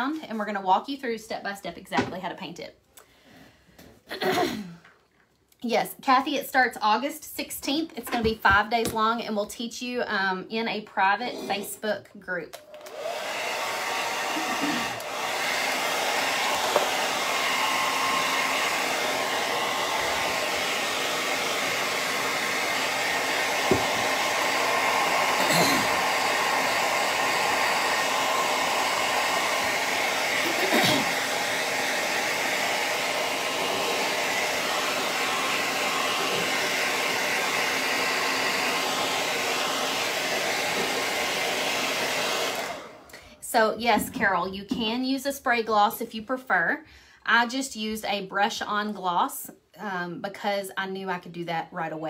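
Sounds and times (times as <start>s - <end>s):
hair dryer blowing: 12.6s - 43.8s.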